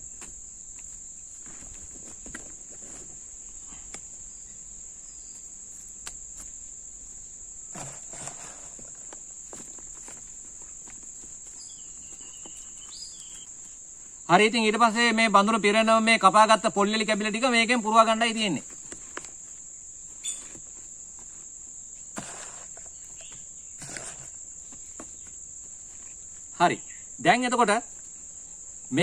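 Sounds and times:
insects chirring: 0:00.0 - 0:29.0
rustles and clicks in plastic pot: 0:07.7 - 0:13.8, 0:18.3 - 0:26.5.

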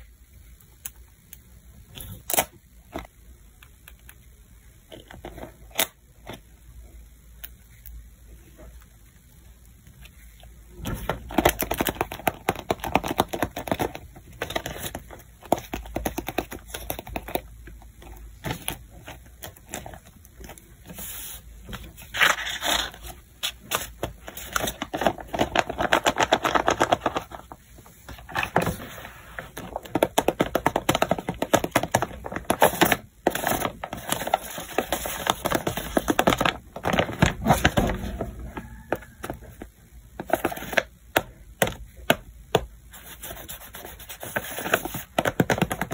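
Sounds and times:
paper rustling and crinkling: 0:18.4 - 0:39.6.

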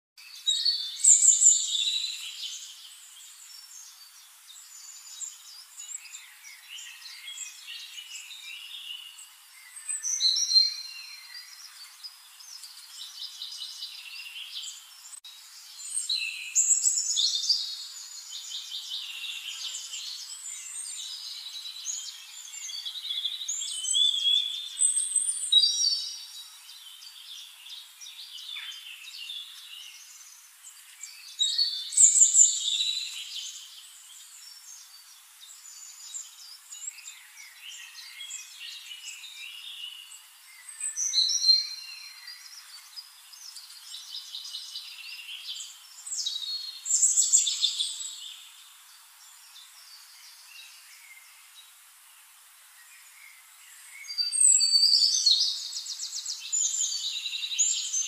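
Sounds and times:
birds chirping and calling: 0:00.4 - 0:04.0, 0:54.0 - 0:58.0.

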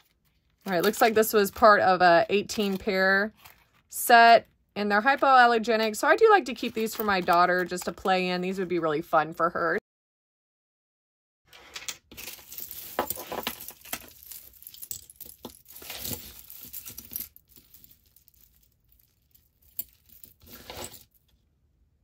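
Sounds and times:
jewelry clinking and jangling: 0:12.1 - 0:21.2.

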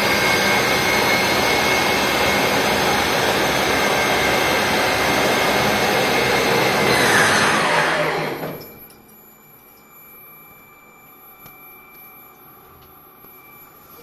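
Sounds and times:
machine spindle spinning down: 0:00.0 - 0:08.9
high electrical whine: 0:00.0 - 0:14.0.

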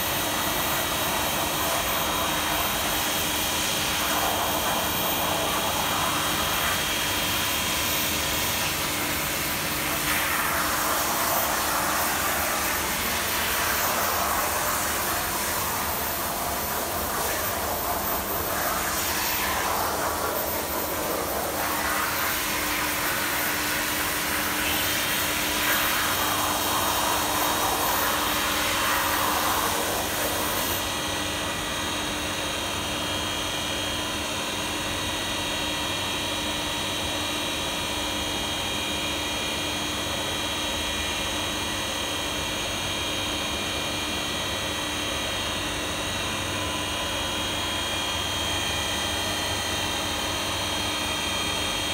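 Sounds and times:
machine motors humming and whining: 0:00.0 - 0:33.0.

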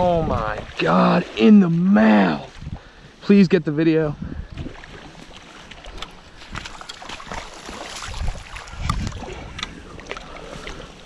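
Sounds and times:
fish splashing in shallow water: 0:04.4 - 0:11.0.

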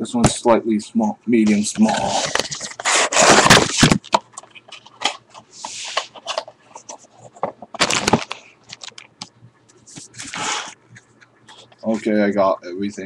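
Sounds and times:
plastic packaging crinkling: 0:01.8 - 0:09.2.

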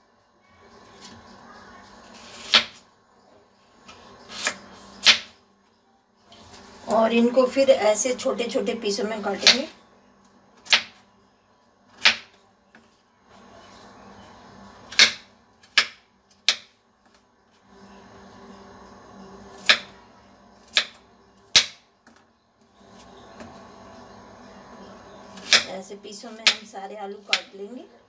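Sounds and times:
knife hitting wooden board: 0:12.0 - 0:12.3, 0:14.9 - 0:16.7.

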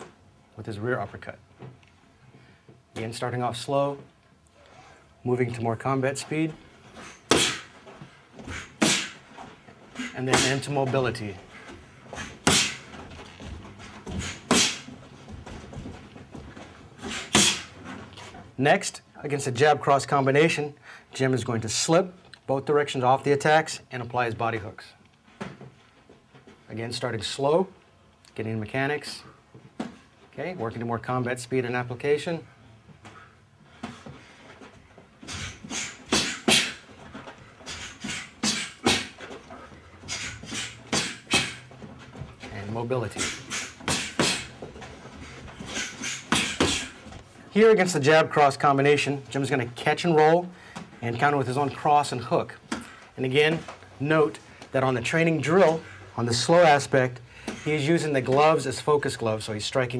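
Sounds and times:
boxing gloves punching: 0:07.0 - 0:09.4, 0:10.0 - 0:10.8, 0:12.0 - 0:17.8, 0:35.2 - 0:42.4, 0:43.1 - 0:47.2
punches on boxing gloves: 0:07.3 - 0:07.7, 0:08.4 - 0:09.2, 0:12.2 - 0:13.0, 0:14.1 - 0:14.9, 0:17.0 - 0:17.7, 0:35.3 - 0:36.9, 0:40.1 - 0:41.6, 0:43.2 - 0:44.6, 0:45.6 - 0:47.0.

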